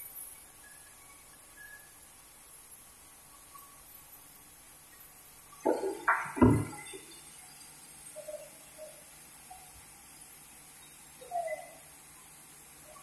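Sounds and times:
faint steady hum: 0:00.0 - 0:13.0
timber knocking on metal carriage: 0:05.7 - 0:06.9.

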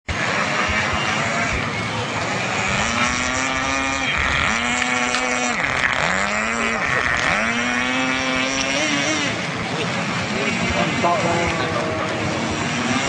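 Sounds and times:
model boat engine revving: 0:00.1 - 0:13.0.

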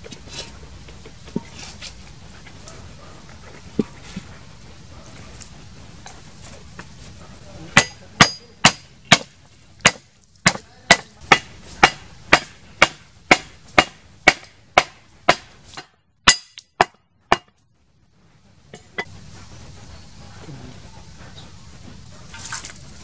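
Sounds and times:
cleaver chopping on wooden block: 0:07.8 - 0:17.5.

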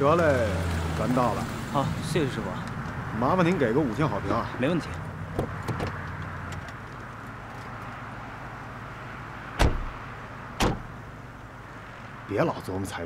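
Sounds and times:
car background noise: 0:00.0 - 0:13.0
car doors shutting: 0:05.3 - 0:06.8, 0:09.6 - 0:11.0.

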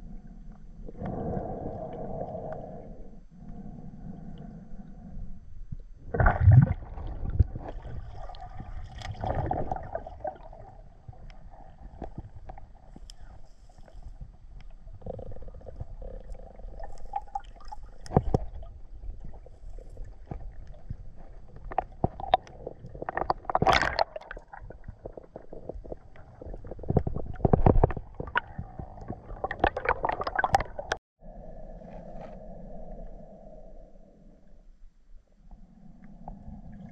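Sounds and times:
water gurgling and bubbling: 0:06.1 - 0:12.8, 0:14.9 - 0:31.0.

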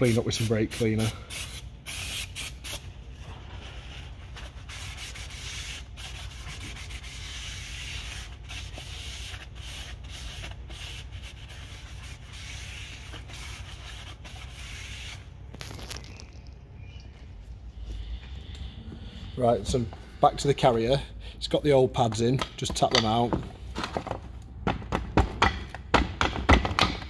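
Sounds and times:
cloth rubbing on brake disc: 0:02.1 - 0:16.2.

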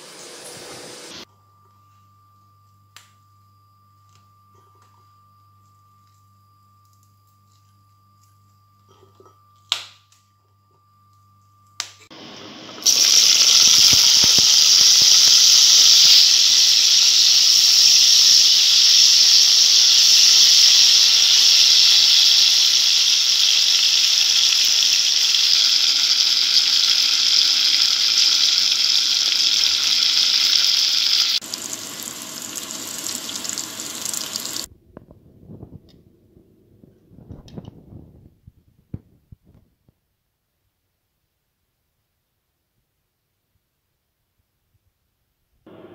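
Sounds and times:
chilies sizzling in hot oil: 0:12.1 - 0:34.7.

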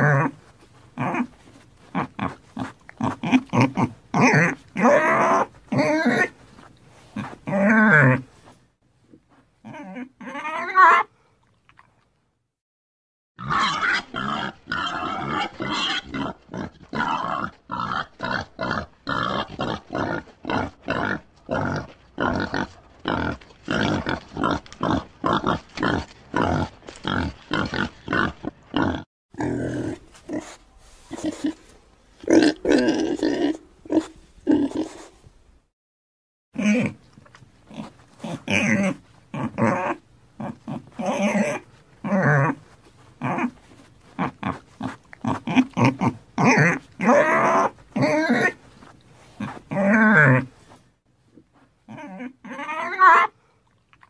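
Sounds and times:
pig grunting: 0:00.0 - 0:00.4, 0:01.0 - 0:06.4, 0:13.4 - 0:31.6, 0:36.6 - 0:37.0, 0:37.7 - 0:42.6, 0:44.2 - 0:48.6, 0:49.4 - 0:50.6, 0:51.9 - 0:53.4
pig call: 0:51.9 - 0:53.3.

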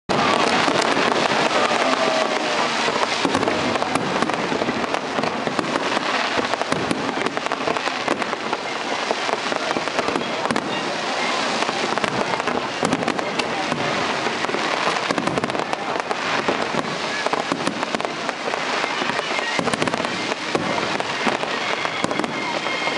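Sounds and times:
fireworks bursting: 0:00.1 - 0:22.9.

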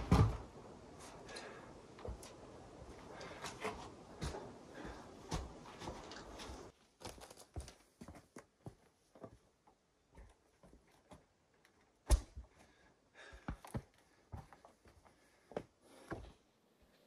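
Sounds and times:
heavy thump of wood dropped: 0:00.0 - 0:00.5.

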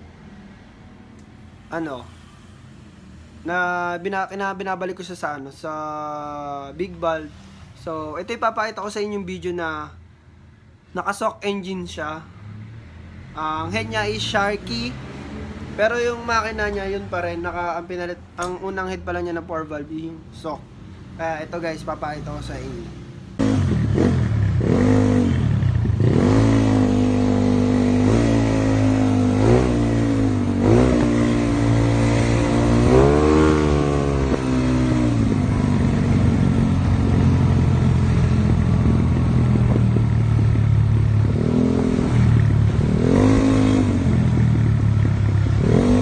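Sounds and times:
scooter engine revving: 0:23.4 - 0:46.0.

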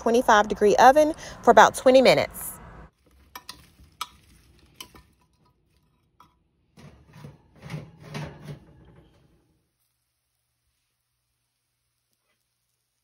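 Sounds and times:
dish scraping on metal rack: 0:03.3 - 0:09.4.

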